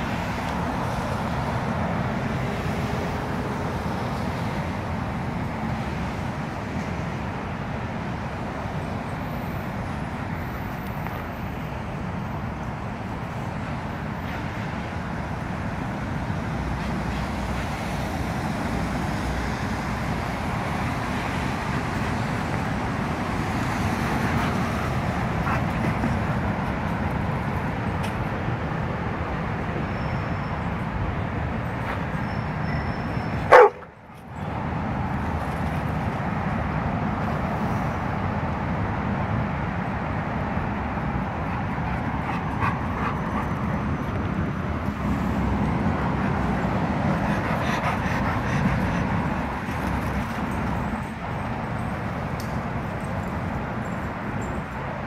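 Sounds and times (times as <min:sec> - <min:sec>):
road traffic noise: 0:00.0 - 0:55.0
dog barking: 0:33.5 - 0:33.9.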